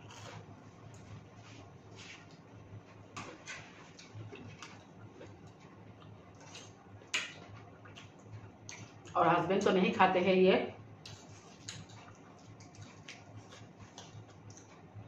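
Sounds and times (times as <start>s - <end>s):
chewing and lip smacks: 4.0s - 9.2s, 11.0s - 15.0s.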